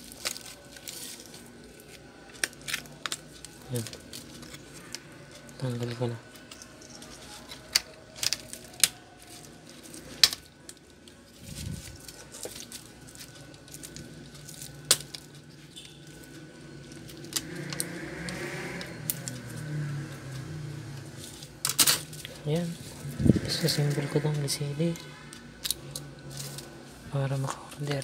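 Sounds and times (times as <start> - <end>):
plastic rustling: 0.0 - 19.7.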